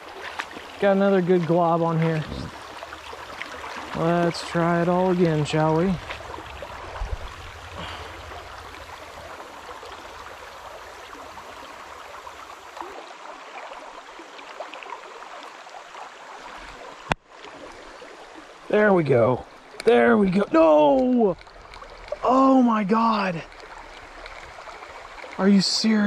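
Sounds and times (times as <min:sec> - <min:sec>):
river current rippling: 0:00.0 - 0:26.0
low rumble: 0:02.2 - 0:12.4.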